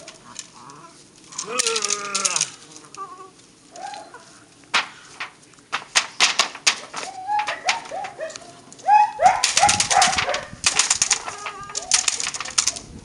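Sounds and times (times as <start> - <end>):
puppy yipping: 3.7 - 4.3, 7.0 - 10.5
sharp crackling hits and clicks: 4.7 - 8.2, 9.2 - 12.8.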